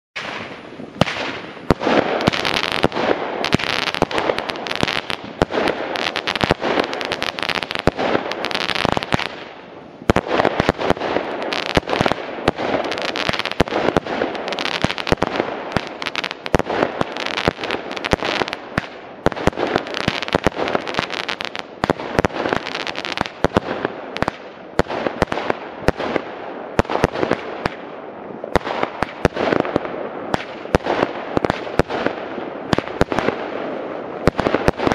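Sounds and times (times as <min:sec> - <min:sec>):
firework launch pops: 0:00.2 - 0:05.7
crackling star bursts: 0:00.2 - 0:34.9.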